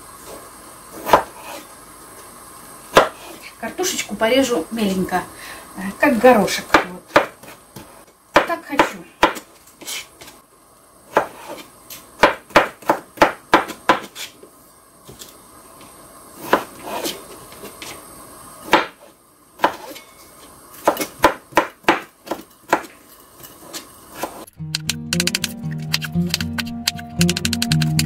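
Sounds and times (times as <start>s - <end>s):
knife chopping on cutting board: 8.4s - 9.5s, 11.1s - 11.6s, 12.2s - 14.3s, 20.8s - 22.9s.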